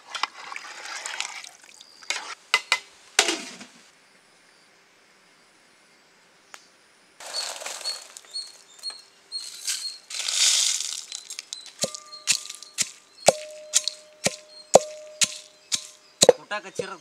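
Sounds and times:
rustling: 0:07.2 - 0:16.0
knife chopping with metallic ring: 0:11.8 - 0:17.0.

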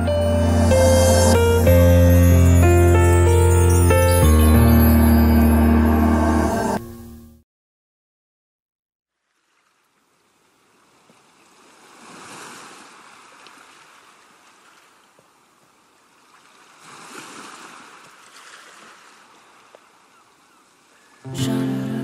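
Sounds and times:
music with deep bass: 0:00.0 - 0:06.8
rushing ambient noise: 0:00.0 - 0:06.8.

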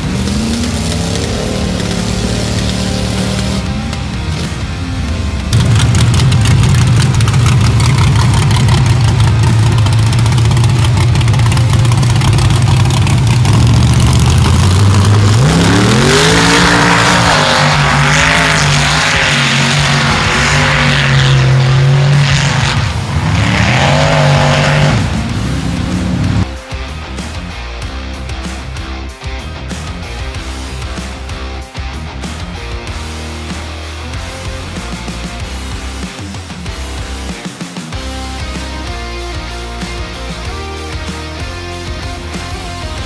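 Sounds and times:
truck engine revving: 0:00.0 - 0:28.8.

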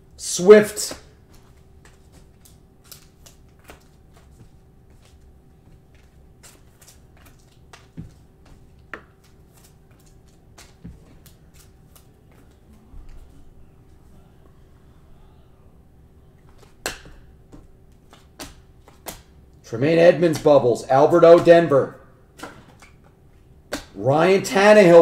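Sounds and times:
faint steady hum: 0:00.0 - 0:25.0
cards tapping on cards: 0:00.9 - 0:13.3, 0:16.4 - 0:19.4, 0:20.1 - 0:21.7, 0:22.4 - 0:24.0.

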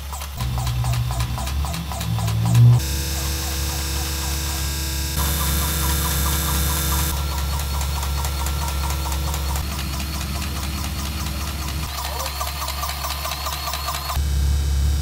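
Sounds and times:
low engine hum: 0:00.4 - 0:05.4.

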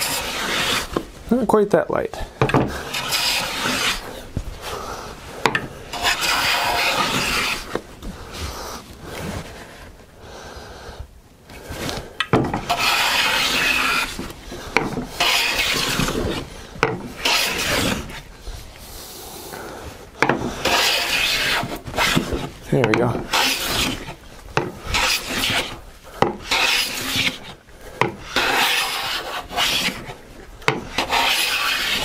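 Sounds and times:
hand plane shaving wood: 0:00.0 - 0:01.1, 0:02.6 - 0:04.9, 0:05.5 - 0:07.8, 0:12.4 - 0:18.3, 0:20.2 - 0:32.0.

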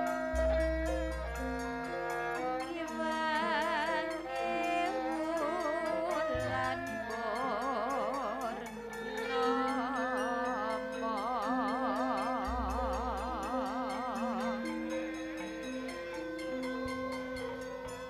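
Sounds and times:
metallophones playing melody: 0:00.0 - 0:05.8
woman singing ornamented lines: 0:02.6 - 0:15.9.

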